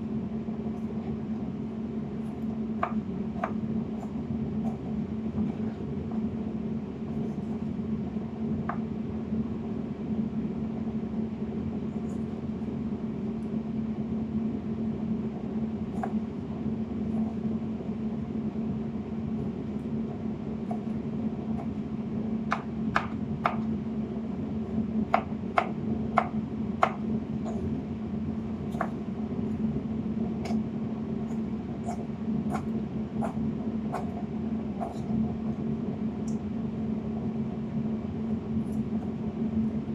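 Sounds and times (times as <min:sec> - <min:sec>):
steady low hum: 0:00.0 - 0:39.9
knife chopping on cutting board: 0:02.8 - 0:04.8, 0:15.9 - 0:16.2, 0:22.4 - 0:23.6, 0:25.1 - 0:27.7, 0:28.7 - 0:29.0, 0:30.4 - 0:30.6, 0:31.3 - 0:35.2.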